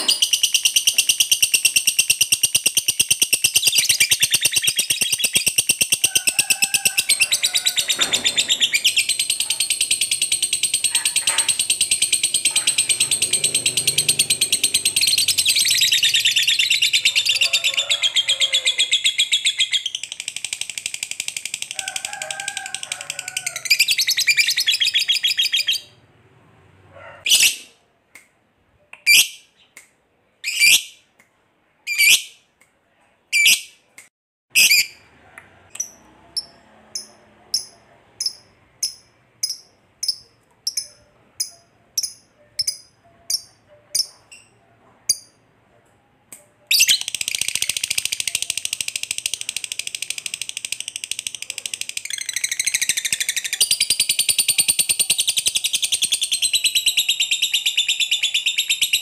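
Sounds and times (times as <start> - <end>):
bird chattering trill: 0.0 - 6.1, 7.0 - 21.7, 46.7 - 59.0
bird chirps: 0.0 - 6.1, 7.2 - 17.6, 52.0 - 59.0.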